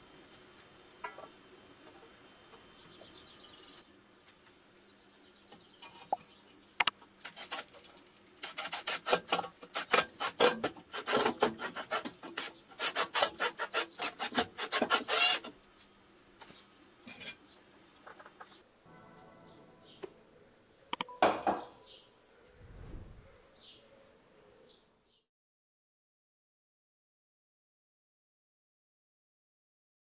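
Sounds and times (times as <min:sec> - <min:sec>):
screwdriver scraping screw into wood: 0:07.3 - 0:15.5.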